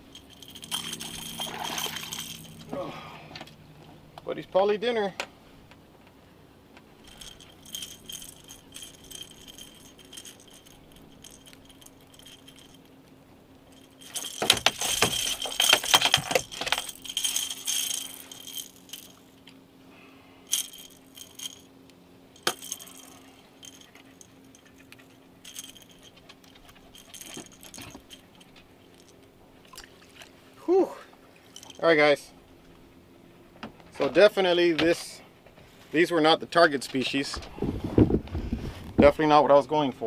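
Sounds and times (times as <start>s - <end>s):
fishing tackle rattling: 0.0s - 2.7s, 7.0s - 13.0s, 13.7s - 19.3s, 20.5s - 21.7s, 22.4s - 29.9s, 31.5s - 32.0s.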